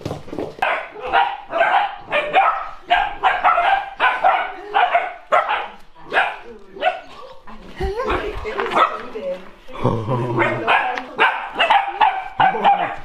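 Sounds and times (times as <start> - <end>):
puppies barking: 0.6 - 7.5, 10.4 - 13.0.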